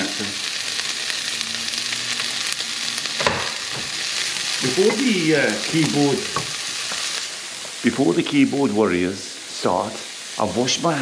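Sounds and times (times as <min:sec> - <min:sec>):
person's voice: 0:00.0 - 0:00.4, 0:04.6 - 0:06.4, 0:07.8 - 0:11.0
bacon and onions sizzling in pan: 0:00.0 - 0:11.0
wooden spatula stirring: 0:06.2 - 0:07.2.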